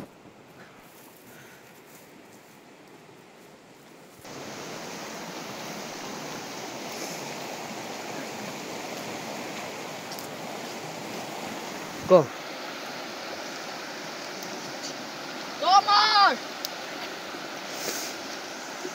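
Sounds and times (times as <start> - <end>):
river rushing over stones: 4.2 - 18.9.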